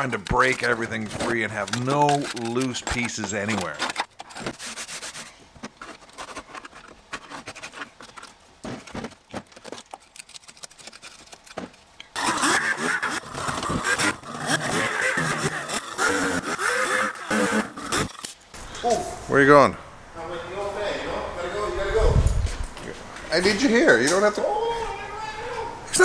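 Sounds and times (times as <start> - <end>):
hand scraper scraping metal: 0.0 - 18.3.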